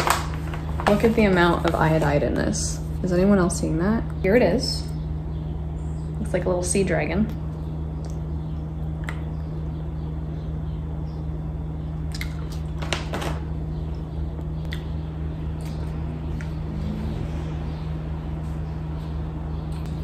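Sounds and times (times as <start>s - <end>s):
plastic bag rustling: 0.0s - 2.4s
low hum: 0.0s - 20.0s
mouth clicks: 14.6s - 15.0s.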